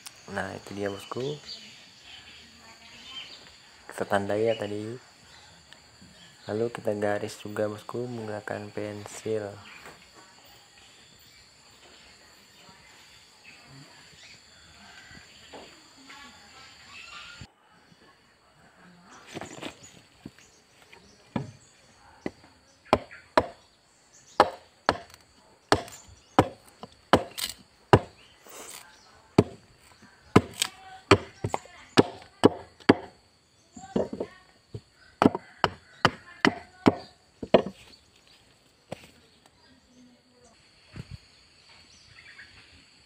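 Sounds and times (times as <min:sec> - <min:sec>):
blade chopping into wood: 0:24.4 - 0:28.8, 0:29.4 - 0:29.6, 0:30.4 - 0:33.2.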